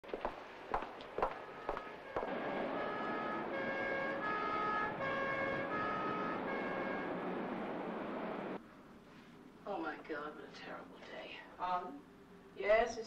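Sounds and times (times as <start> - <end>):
city traffic noise: 0.0 - 8.6
two-tone emergency siren: 1.4 - 7.6.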